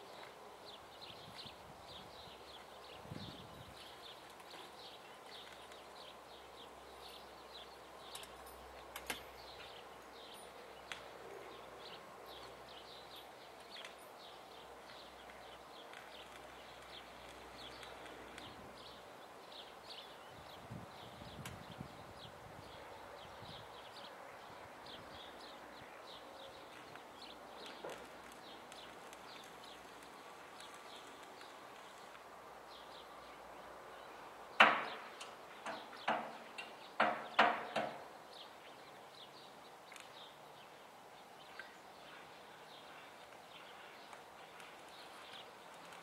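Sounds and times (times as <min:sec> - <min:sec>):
sharp knocks: 0:34.6 - 0:35.0, 0:37.0 - 0:38.0.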